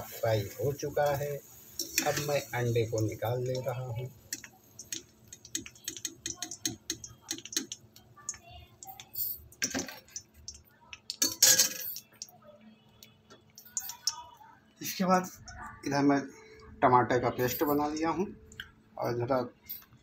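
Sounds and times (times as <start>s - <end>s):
oil crackling and popping: 0.0s - 15.5s
skimmer clattering against pan: 1.0s - 8.4s
small ticks and clinks: 4.3s - 12.4s, 13.0s - 14.3s.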